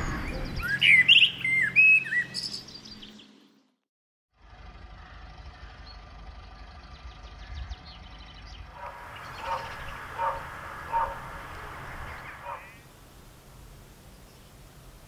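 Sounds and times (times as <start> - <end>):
small birds chirping: 0.0 - 3.8, 5.0 - 12.9
distant vehicle engine running: 4.3 - 12.8
animal call: 8.7 - 12.8.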